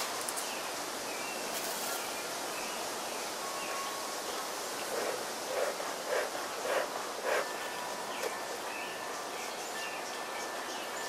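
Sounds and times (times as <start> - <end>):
outdoor background hiss: 0.0 - 11.0
bellows puffing: 4.8 - 7.8.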